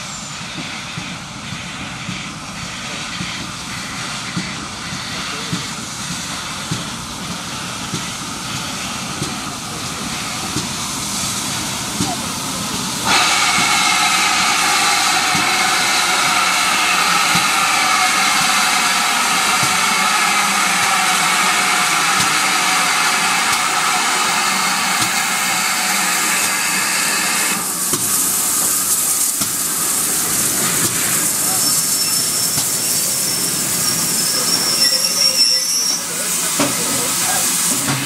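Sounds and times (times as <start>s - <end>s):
train brakes squealing: 0.0s - 5.8s, 13.0s - 27.6s, 30.6s - 38.0s
steam hissing: 0.0s - 38.0s.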